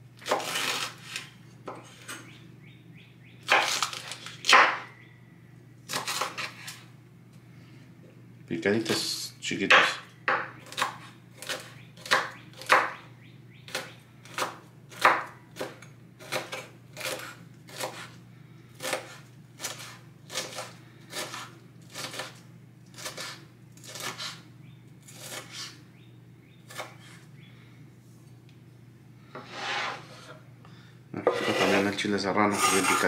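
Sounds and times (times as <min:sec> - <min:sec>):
knife chopping on wooden board: 0:03.5 - 0:04.9, 0:09.7 - 0:13.0, 0:13.7 - 0:18.1, 0:18.8 - 0:22.4.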